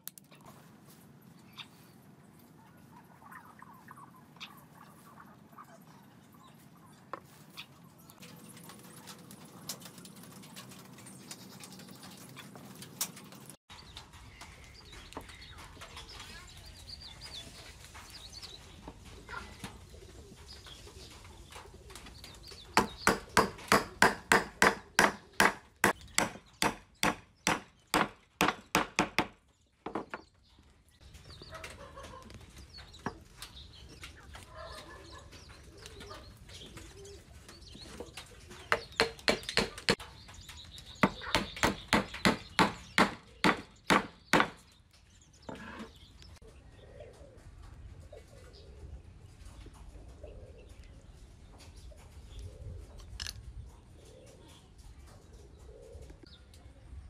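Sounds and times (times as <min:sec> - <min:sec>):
hammer striking timber: 0:22.8 - 0:30.2, 0:38.7 - 0:40.0, 0:41.0 - 0:44.6.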